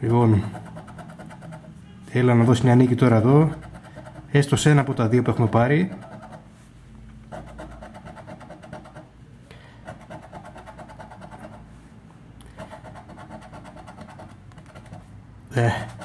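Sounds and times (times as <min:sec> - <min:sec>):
coin scraping scratch card: 0:00.0 - 0:01.8, 0:03.0 - 0:06.6, 0:07.2 - 0:09.2, 0:09.8 - 0:11.7, 0:12.5 - 0:16.0.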